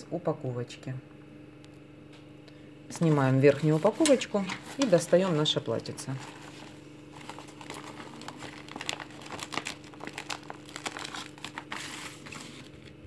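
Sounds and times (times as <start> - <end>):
plastic bag crinkling: 3.0 - 13.0.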